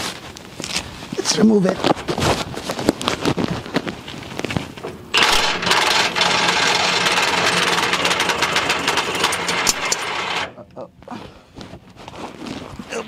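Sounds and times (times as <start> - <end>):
impact wrench hammering: 5.2 - 10.6.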